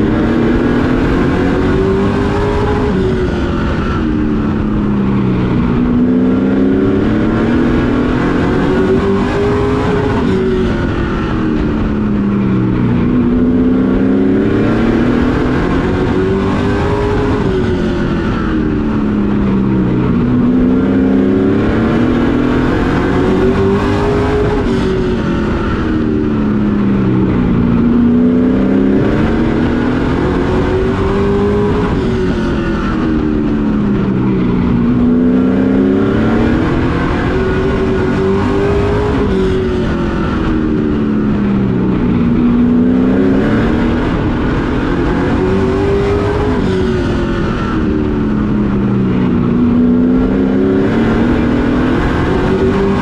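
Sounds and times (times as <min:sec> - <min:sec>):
racing truck engine revving: 0:00.0 - 0:53.0.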